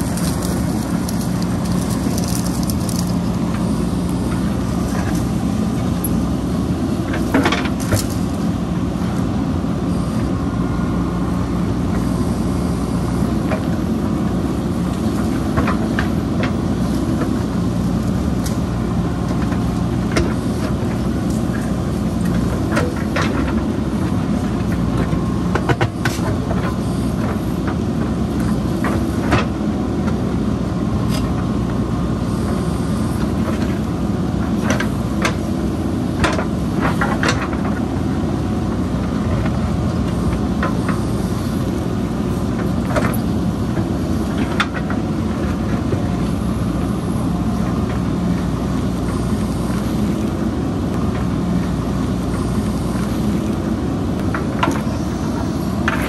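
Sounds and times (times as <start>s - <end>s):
diesel engine running under load: 0.0s - 56.0s.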